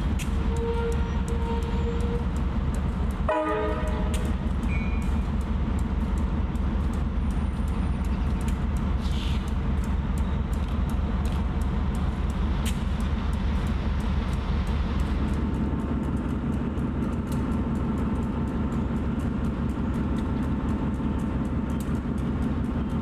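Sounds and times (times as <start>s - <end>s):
locomotive engine idling: 0.0s - 23.0s.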